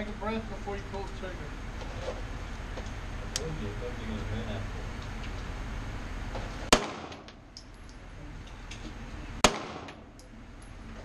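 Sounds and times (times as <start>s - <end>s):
pistol shots echoing indoors: 6.7s - 7.3s, 9.4s - 10.2s.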